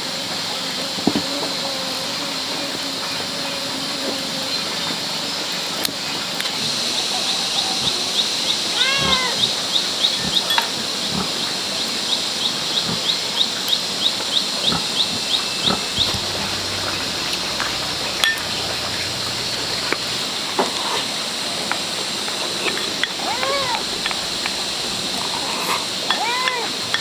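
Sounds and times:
animal brief pitched cry: 8.7s - 9.5s
rhythmic high chirping: 14.6s - 20.3s.

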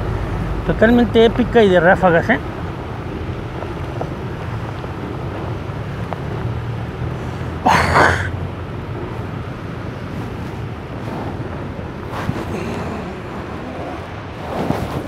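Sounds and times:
wind buffeting microphone: 0.0s - 7.6s, 8.3s - 15.0s
heavy rain: 0.0s - 15.0s
storm wind: 0.0s - 15.0s.

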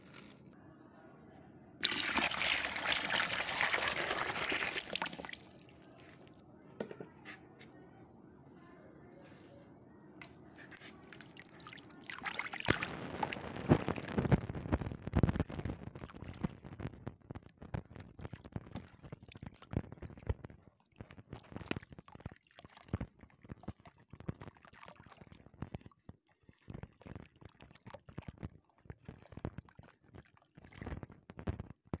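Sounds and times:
crumbs splashing into water: 1.8s - 6.5s, 11.0s - 16.8s.

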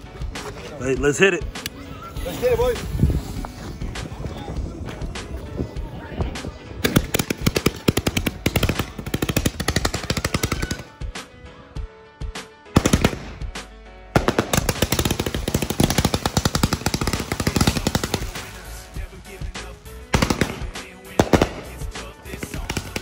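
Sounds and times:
fireworks firing in rapid volleys: 6.8s - 11.0s, 12.8s - 13.5s, 14.2s - 19.1s, 20.1s - 23.0s.

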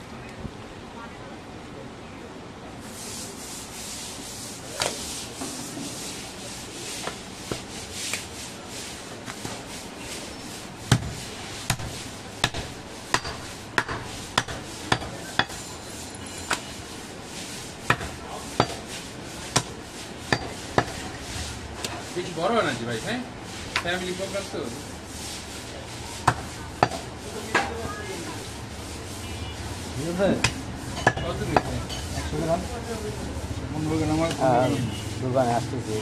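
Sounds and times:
meat rubbing and scraping: 2.8s - 36.0s
knife striking wooden chopping block: 10.9s - 11.1s, 11.7s - 15.6s, 30.4s - 31.8s.

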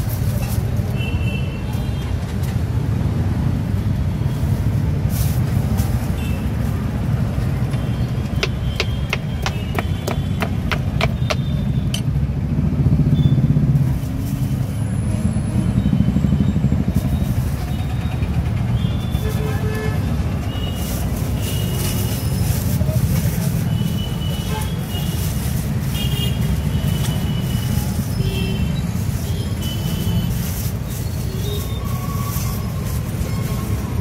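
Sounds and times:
low rumble of street noise: 0.0s - 34.0s
knife chopping on wooden board: 8.4s - 11.5s.

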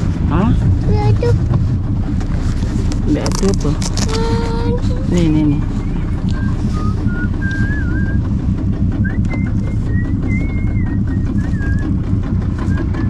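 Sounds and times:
low rumbling noise: 0.0s - 13.0s
whistled tune: 5.8s - 12.0s, 12.6s - 13.0s.

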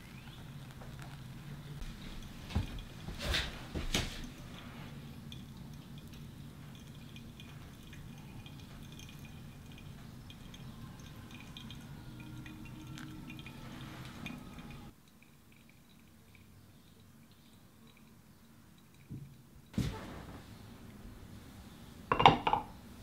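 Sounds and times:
drips and crackles: 0.0s - 19.8s
water trickling onto coffee grounds: 0.0s - 21.1s
low hum: 4.2s - 14.9s.

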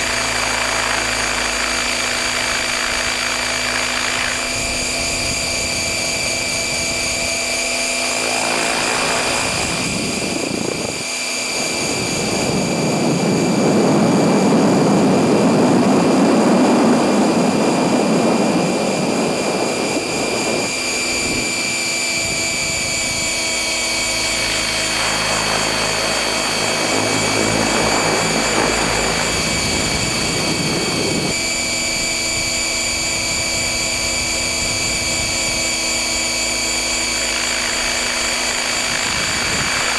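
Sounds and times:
rotor sound: 0.0s - 13.1s, 16.9s - 39.9s
helicopter motor whine: 0.0s - 39.9s
rushing noise: 22.2s - 32.0s.

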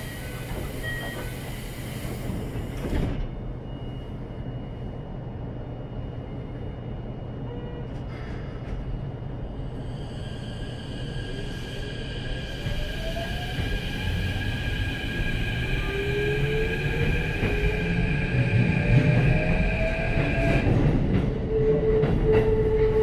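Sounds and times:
sliding train doors closing: 0.0s - 3.5s
train car low hum: 0.0s - 23.0s.

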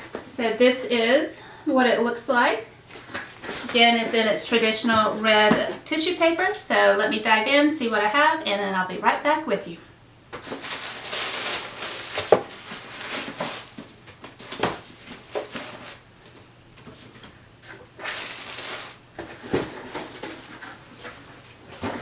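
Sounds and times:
tissue paper rustling: 10.4s - 16.0s, 17.7s - 21.5s.

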